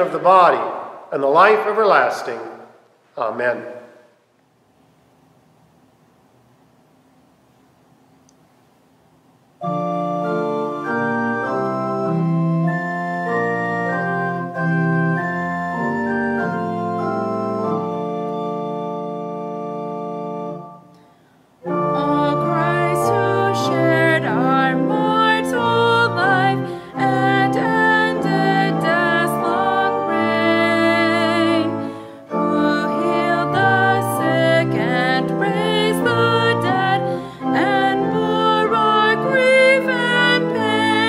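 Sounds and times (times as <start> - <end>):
person singing a hymn: 9.6 - 20.9, 21.6 - 41.0
church organ chords: 9.6 - 41.0.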